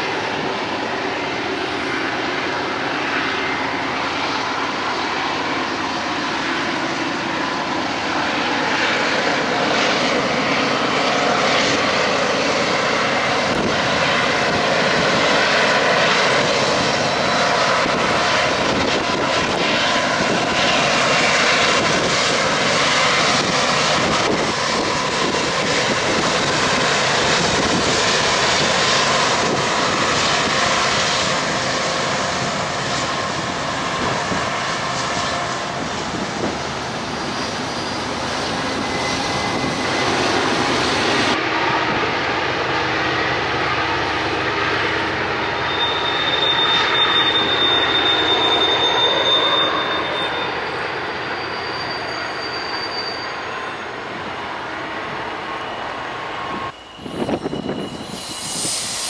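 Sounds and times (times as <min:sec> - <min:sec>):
diesel locomotives passing: 0:00.0 - 0:59.0.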